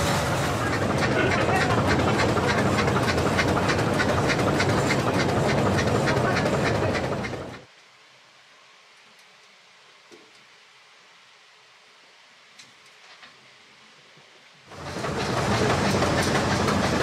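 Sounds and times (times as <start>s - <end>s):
train rumbling: 0.0s - 7.7s, 14.7s - 17.0s
wheels clickety-clack: 0.0s - 7.7s, 14.7s - 17.0s
faint hiss: 7.6s - 14.7s.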